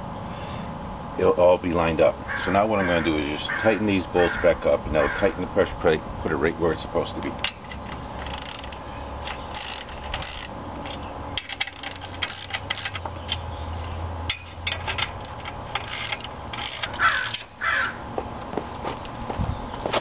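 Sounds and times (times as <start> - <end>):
ratchet wrench clicking: 7.4 - 13.4, 14.3 - 17.5
metal tools clinking: 14.3 - 17.0.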